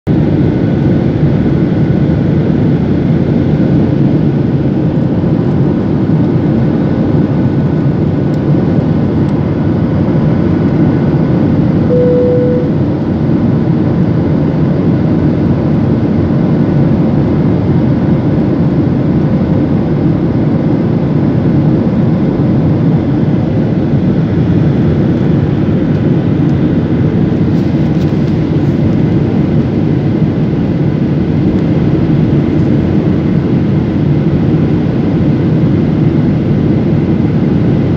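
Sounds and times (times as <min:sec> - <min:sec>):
single tone: 0:11.8 - 0:13.1
faint whine tones: 0:11.9 - 0:13.1.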